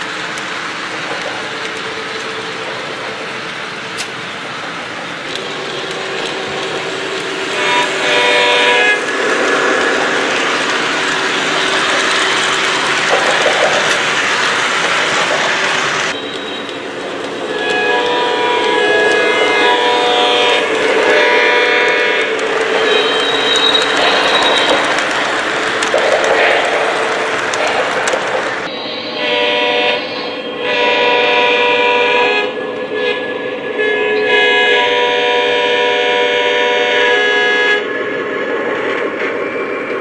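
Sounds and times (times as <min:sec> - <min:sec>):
model train wheels rushing on track: 0:00.0 - 0:40.0
diesel locomotive air horn: 0:05.4 - 0:10.1, 0:17.4 - 0:24.9, 0:28.7 - 0:37.9.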